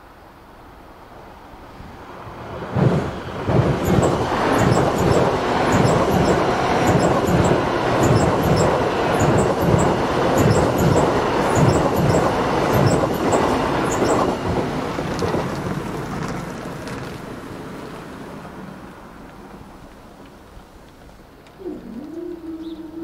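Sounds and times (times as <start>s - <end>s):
electric train passing at speed: 0.0s - 21.8s
wheels clacking over rail joints: 2.6s - 18.6s.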